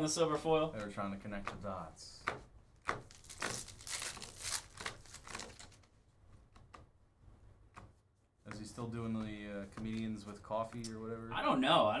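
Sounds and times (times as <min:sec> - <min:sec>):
wrappers tearing and crinkling: 0:03.1 - 0:05.9.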